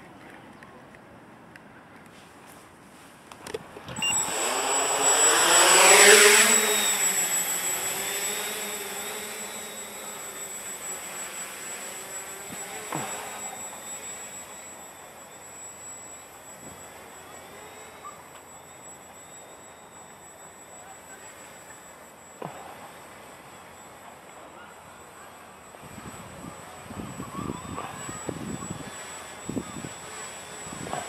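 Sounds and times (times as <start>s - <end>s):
quadcopter motors whirring: 3.3s - 31.0s.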